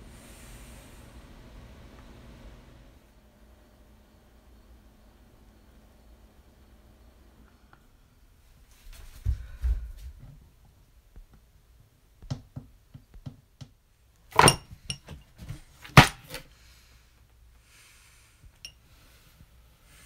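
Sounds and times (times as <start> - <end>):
faint hiss: 0.0 - 9.3, 16.4 - 20.0.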